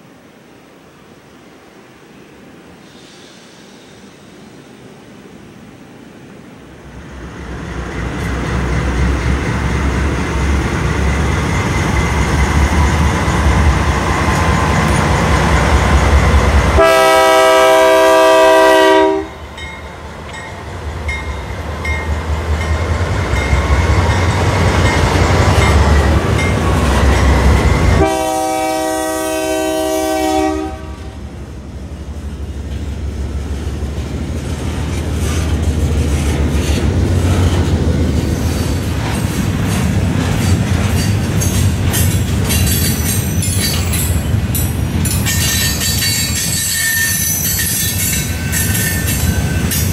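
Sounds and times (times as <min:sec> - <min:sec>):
diesel locomotive engines rumbling: 0:02.6 - 0:49.9
train horn chord blasts: 0:16.7 - 0:19.5, 0:27.0 - 0:31.4
freight cars clattering over rail joints: 0:38.7 - 0:49.9.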